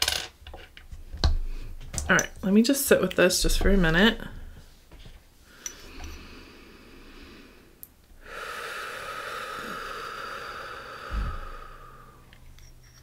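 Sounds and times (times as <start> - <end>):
long breathy exhale: 5.4 - 12.4.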